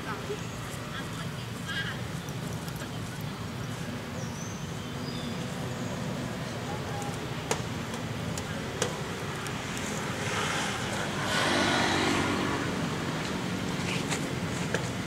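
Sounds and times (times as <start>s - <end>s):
vehicle passing by: 5.3s - 15.0s.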